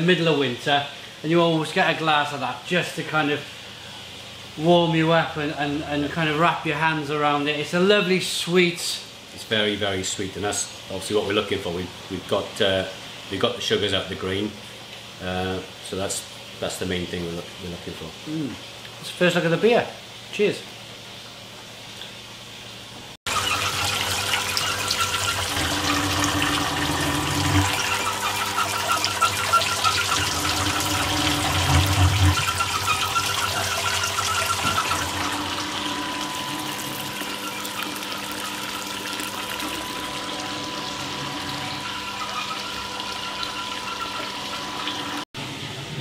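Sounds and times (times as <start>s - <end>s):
water spraying and splashing: 23.3s - 45.2s
machine hum: 23.3s - 46.0s.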